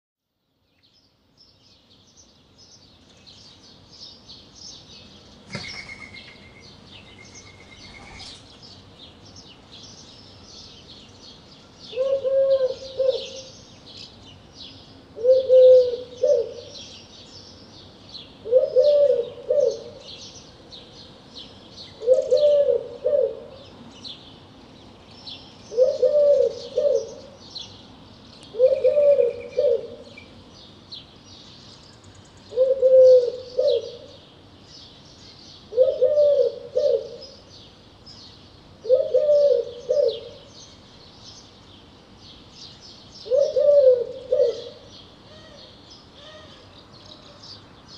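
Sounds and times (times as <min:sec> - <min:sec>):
small songbirds chirping: 0:00.3 - 0:47.9
dove cooing: 0:11.9 - 0:13.5, 0:15.2 - 0:16.8, 0:18.4 - 0:20.1, 0:22.0 - 0:23.7, 0:25.7 - 0:27.4, 0:28.5 - 0:30.1, 0:32.5 - 0:34.1, 0:35.7 - 0:37.4, 0:38.8 - 0:40.5, 0:43.2 - 0:45.6.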